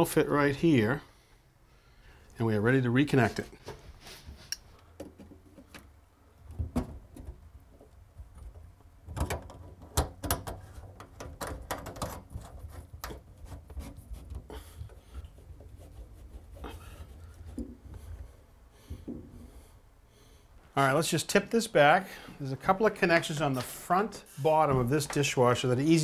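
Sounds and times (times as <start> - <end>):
pipe and nuts clicking and knocking: 4.5 - 16.0, 16.6 - 18.0.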